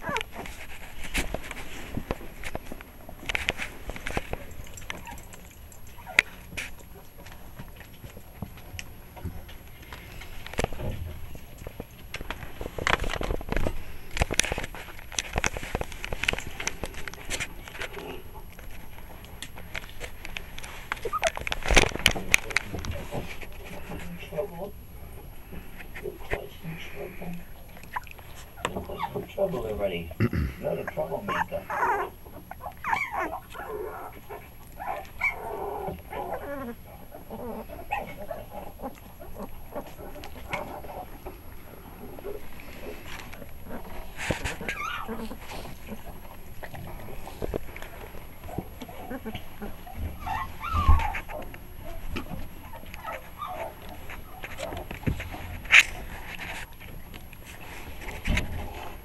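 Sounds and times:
puppies crying: 0.0 - 0.5, 20.9 - 21.6, 30.9 - 54.9
puppies scuffling on blanket: 0.0 - 30.0, 30.9 - 59.0.

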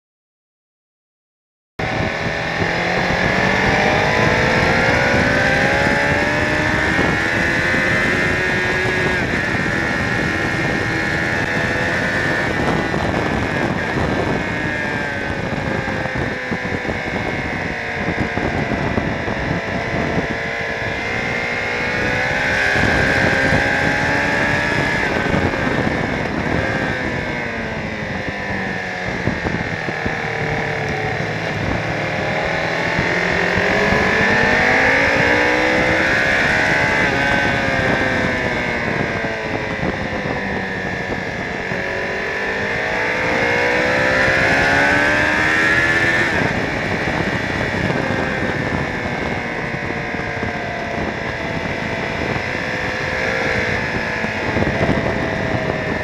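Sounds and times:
motorcycle engine accelerating: 1.8 - 56.0
wind rush over microphone: 1.8 - 56.0.

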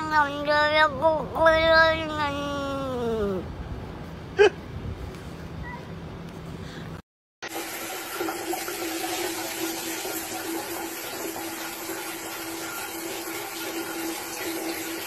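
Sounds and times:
shower spraying on tiled floor: 7.5 - 15.0.

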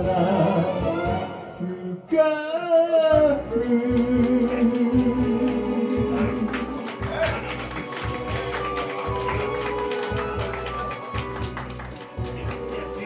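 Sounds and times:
live band music: 0.0 - 1.9, 3.2 - 13.0
person singing: 0.0 - 11.2.

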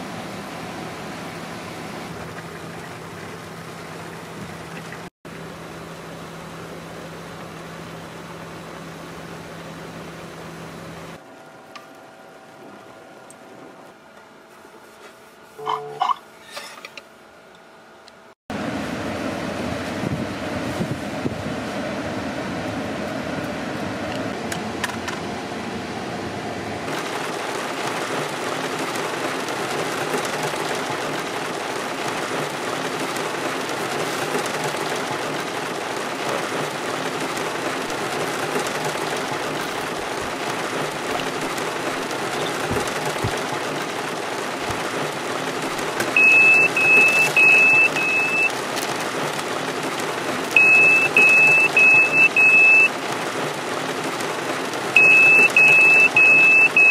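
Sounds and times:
alarm beeping: 15.6 - 16.2, 46.2 - 48.5, 50.6 - 52.9, 55.0 - 56.9
heavy rain on a car: 18.6 - 56.9.

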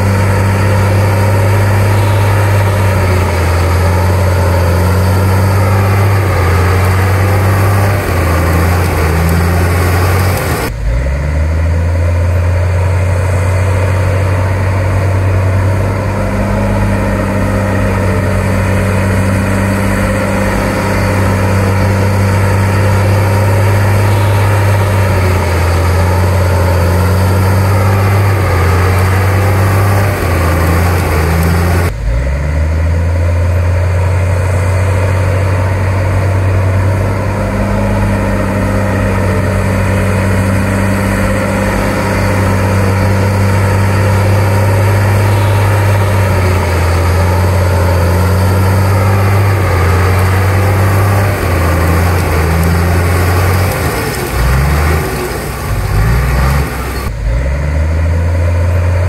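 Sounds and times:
bulldozer diesel engine running: 0.0 - 59.0.

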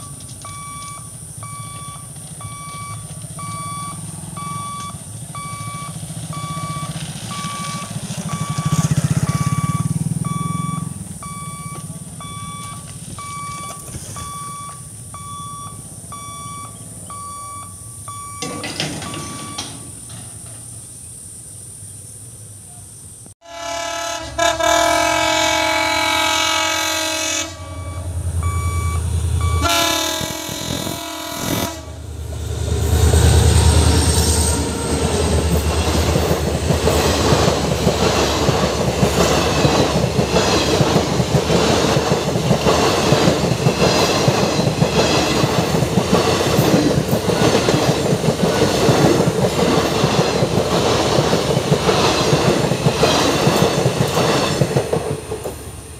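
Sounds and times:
train wheels clickety-clack: 0.0 - 14.9, 32.7 - 55.9
deep locomotive engine rumble: 0.0 - 55.9
locomotive horn blasts: 23.4 - 28.8, 29.4 - 32.2.

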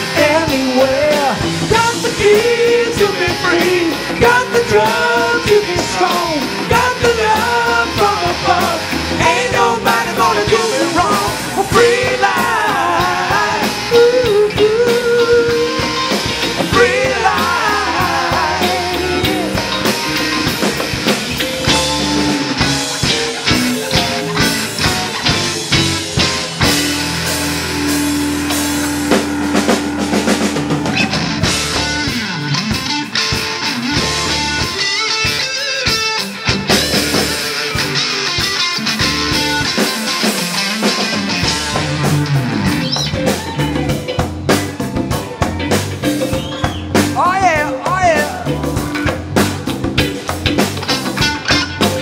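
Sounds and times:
person singing: 0.0 - 20.4, 46.6 - 48.9
live rock band playing: 0.0 - 52.0.

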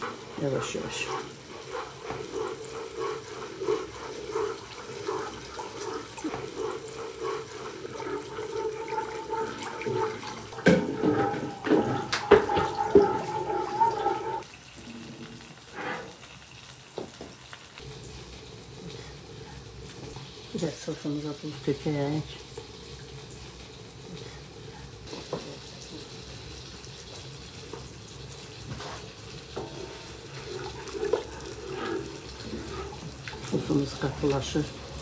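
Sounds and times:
ladle stirring sauce: 0.0 - 14.4, 27.7 - 35.0
hot sauce hissing and bubbling: 0.0 - 35.0
water pouring into a pot: 0.0 - 35.0.

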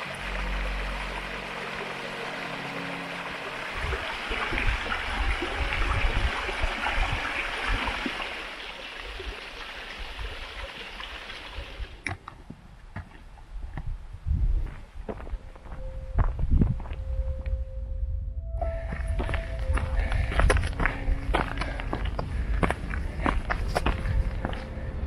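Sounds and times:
waterfall splashing over rocks: 0.0 - 11.8
wind buffeting microphone: 3.7 - 8.2, 13.4 - 25.0.

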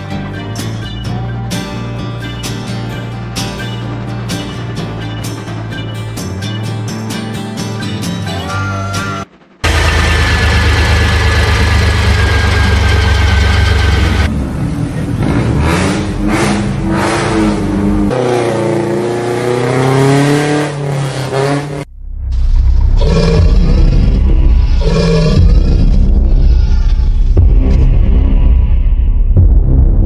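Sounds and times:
car engine rumbling and revving: 9.3 - 29.7.

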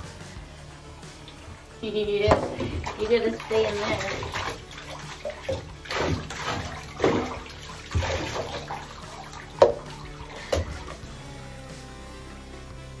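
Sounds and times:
water splashing in a bathtub: 1.1 - 11.2.

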